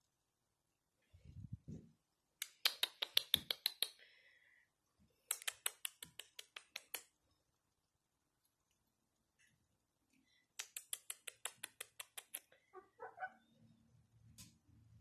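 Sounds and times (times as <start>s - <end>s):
rapid sharp clicks: 10.6s - 12.5s.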